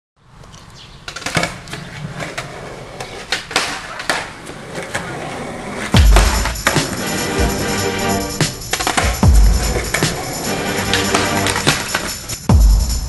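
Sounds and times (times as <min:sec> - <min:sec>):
skateboard rolling on concrete: 0:00.3 - 0:12.5
skateboard clacks: 0:01.0 - 0:07.1, 0:08.4 - 0:12.5
heavy thud: 0:06.0 - 0:06.9.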